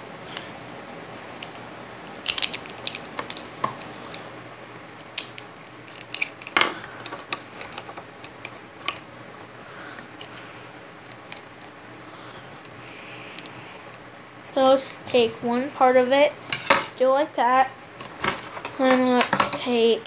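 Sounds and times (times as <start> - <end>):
plastic bricks clicking and clattering: 2.2 - 4.2, 5.2 - 9.0.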